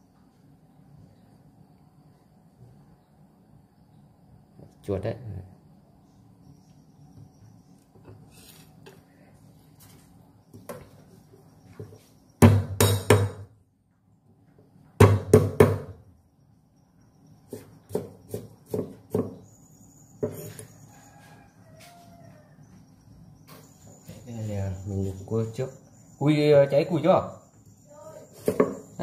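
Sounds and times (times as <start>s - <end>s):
knife chopping on wooden block: 17.5s - 19.4s, 28.4s - 28.9s.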